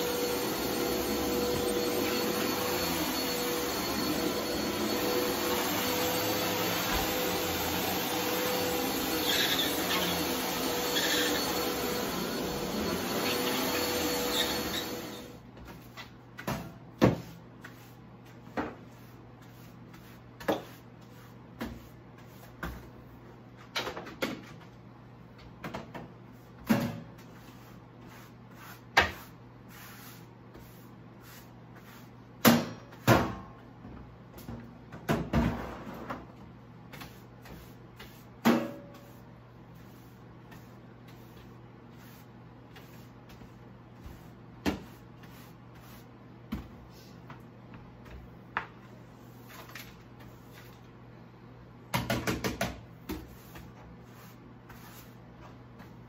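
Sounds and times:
broom sweeping a hard floor: 0.0s - 23.7s, 26.2s - 33.3s, 36.8s - 51.0s, 52.9s - 56.0s.

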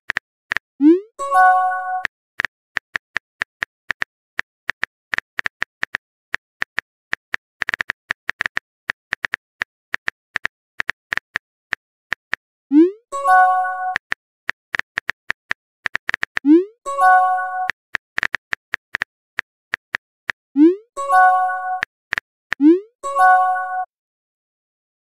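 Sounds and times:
phone keyboard typing clicks: 6.6s - 11.4s.

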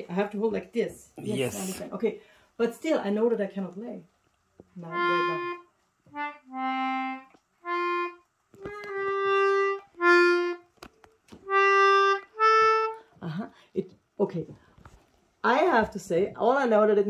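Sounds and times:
concertina notes: 4.8s - 10.8s, 11.4s - 13.0s.

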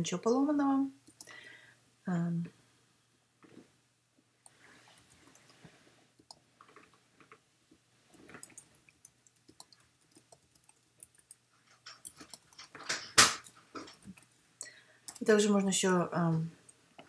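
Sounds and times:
keyboard keys typing: 8.1s - 14.3s.

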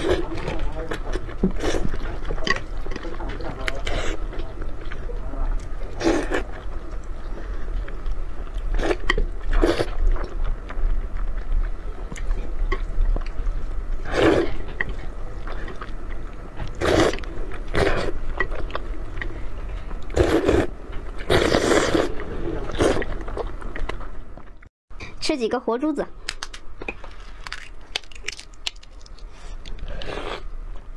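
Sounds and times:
wet noodle slurps: 16.8s - 18.1s, 21.3s - 22.1s.

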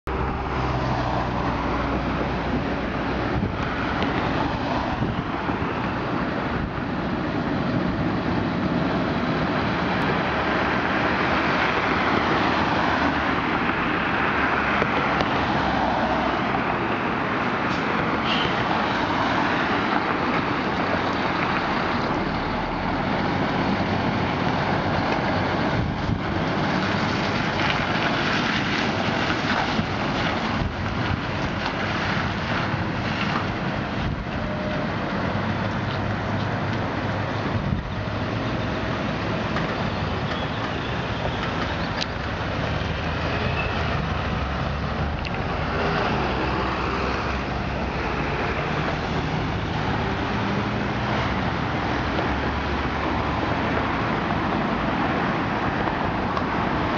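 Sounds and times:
diesel truck engine under load: 19.4s - 56.9s.

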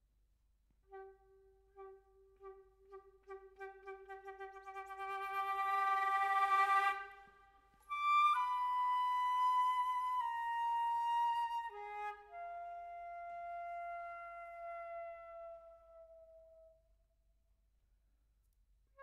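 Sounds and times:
solo flute playing held notes: 0.9s - 7.2s, 7.9s - 16.8s.

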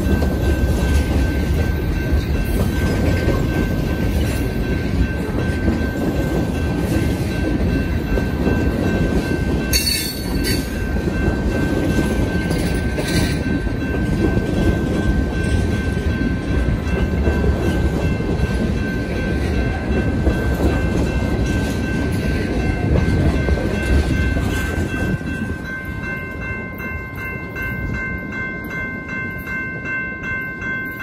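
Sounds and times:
crossing bell ringing: 0.0s - 31.0s
train rumble and wheel clatter: 0.0s - 31.0s.

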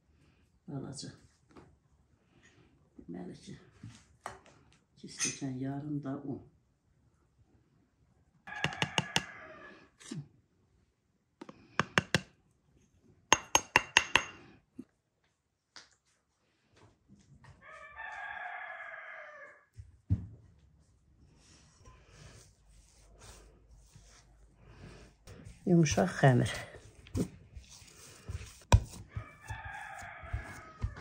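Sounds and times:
rooster crowing: 8.5s - 9.8s, 17.6s - 19.7s, 29.1s - 31.0s.

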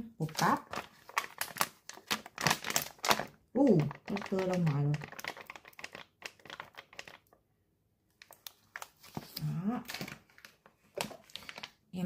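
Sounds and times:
plastic packet crinkling: 0.2s - 7.4s, 8.1s - 11.9s.

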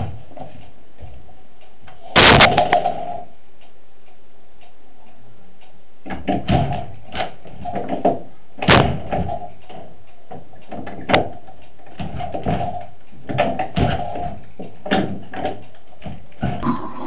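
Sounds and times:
irregular knocks and thuds: 0.0s - 1.2s, 6.0s - 16.7s.

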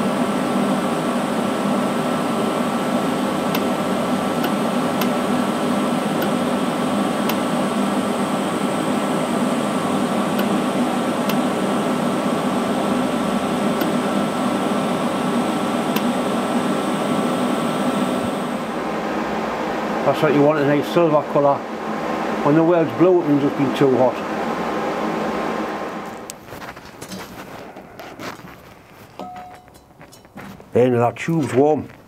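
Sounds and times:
welding arc hiss: 0.0s - 18.7s.

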